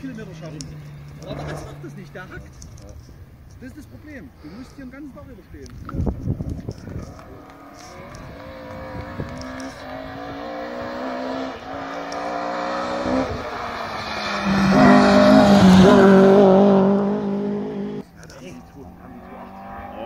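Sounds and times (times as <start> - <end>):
rally car engine accelerating: 0.0 - 2.4, 6.8 - 20.0.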